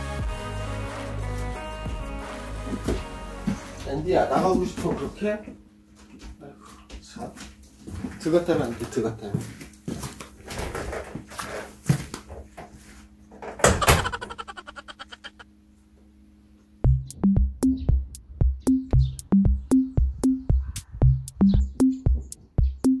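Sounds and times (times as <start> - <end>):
drum machine beat with bass: 0.0 - 3.8, 16.8 - 23.0.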